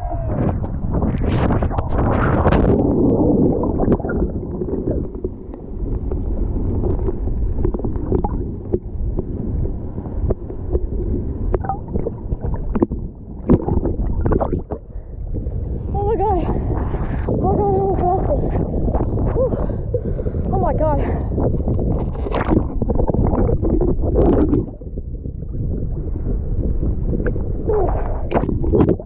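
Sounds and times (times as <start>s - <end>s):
water splashing rush: 0.0s - 15.0s
muffled underwater churning: 0.0s - 29.0s.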